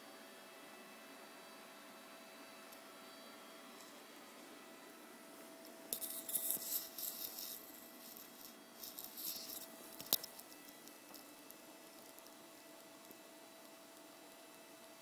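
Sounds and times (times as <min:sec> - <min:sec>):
rustling and rubbing: 0:06.0 - 0:11.3.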